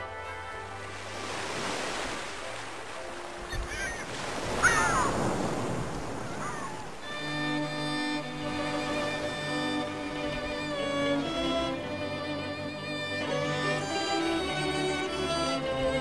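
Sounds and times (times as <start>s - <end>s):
sea surf washing over rocks: 0.9s - 7.6s.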